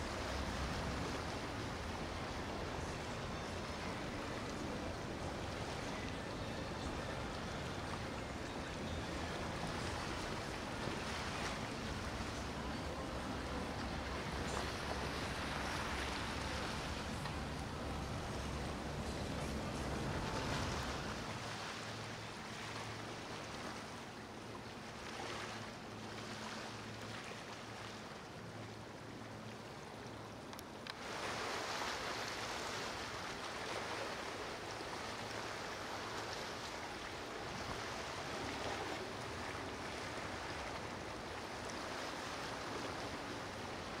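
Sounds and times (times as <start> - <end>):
river water rushing: 0.0 - 44.0
click: 30.5 - 31.0.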